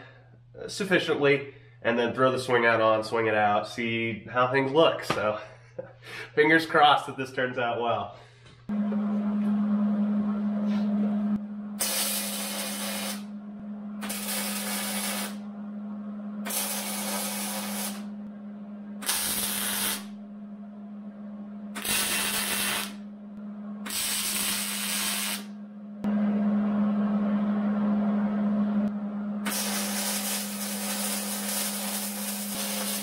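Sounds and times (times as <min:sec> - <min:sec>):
arc welder hissing: 0:11.8 - 0:13.3, 0:14.0 - 0:15.4, 0:16.4 - 0:18.1, 0:19.0 - 0:20.1, 0:21.8 - 0:23.0, 0:23.8 - 0:25.5, 0:29.4 - 0:33.0.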